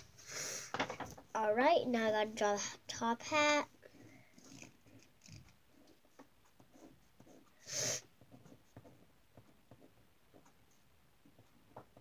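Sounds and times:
drawing tool scratching paper: 3.8 - 11.6
burst of hiss: 7.6 - 8.0.

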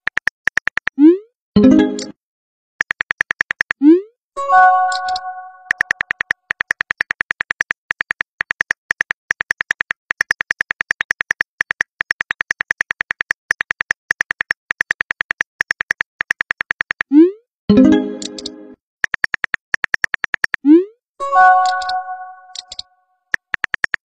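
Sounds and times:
touchscreen keyboard clicks: 0.0 - 1.0, 2.8 - 3.8, 4.8 - 17.2, 17.9 - 20.6, 21.5 - 24.0
message alert chord: 1.6 - 2.1, 4.4 - 5.9, 17.7 - 18.8, 21.2 - 22.8.

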